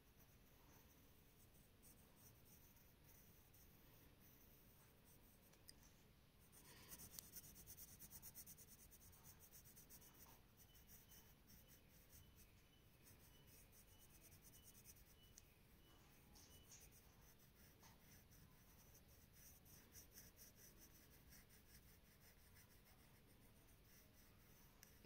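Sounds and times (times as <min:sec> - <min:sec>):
pencil scratching on paper: 0:00.0 - 0:05.5, 0:06.4 - 0:25.0.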